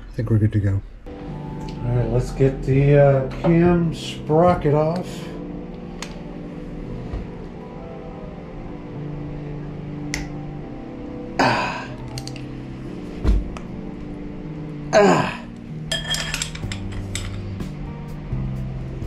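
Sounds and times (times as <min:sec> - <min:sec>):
background music: 0:00.0 - 0:19.0
wrench clanking on metal: 0:15.9 - 0:17.4.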